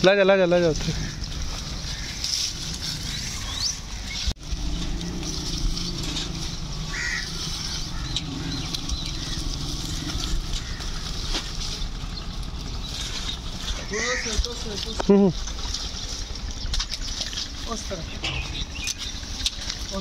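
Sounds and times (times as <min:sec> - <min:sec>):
bird chirps: 0:02.9 - 0:14.4, 0:15.3 - 0:19.7.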